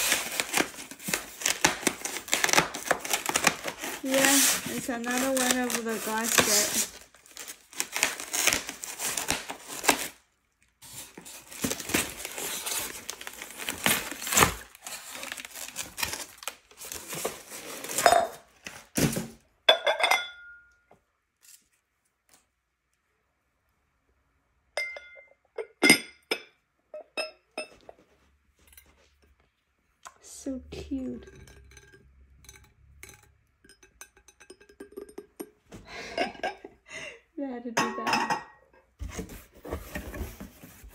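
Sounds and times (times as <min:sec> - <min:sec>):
packaging rustling and scraping: 0:00.0 - 0:10.2, 0:10.8 - 0:19.4, 0:39.0 - 0:40.9
scissors cutting packaging: 0:00.0 - 0:10.2, 0:11.0 - 0:18.0
glass jar clinking: 0:19.7 - 0:20.8, 0:24.8 - 0:27.8, 0:31.2 - 0:35.6.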